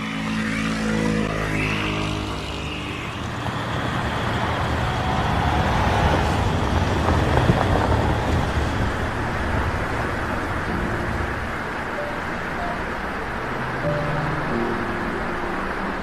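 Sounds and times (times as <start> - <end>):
minibus driving past: 0.0 - 16.0.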